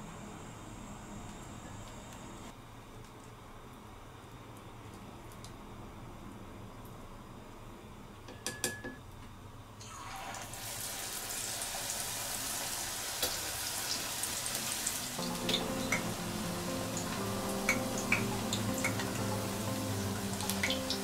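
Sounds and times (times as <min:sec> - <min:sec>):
deep-frying sizzle with crackles: 0:09.7 - 0:21.0.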